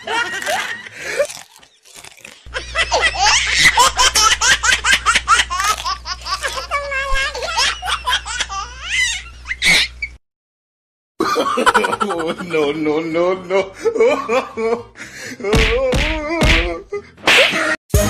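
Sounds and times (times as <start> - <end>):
loud hearty laughter: 0.0 - 1.3, 2.5 - 9.0, 11.2 - 17.0.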